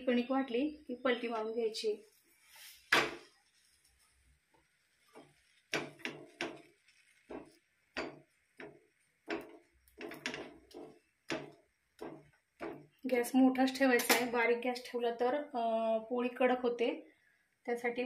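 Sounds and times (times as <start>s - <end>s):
metal spatula knocking on griddle: 5.7s - 6.7s, 7.3s - 12.9s.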